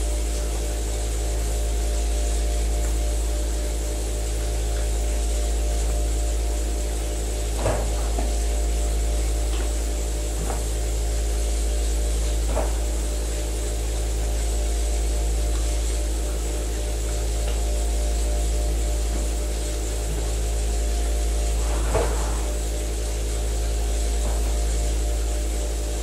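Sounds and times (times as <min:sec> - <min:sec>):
vibrating platform low hum: 0:00.0 - 0:26.0.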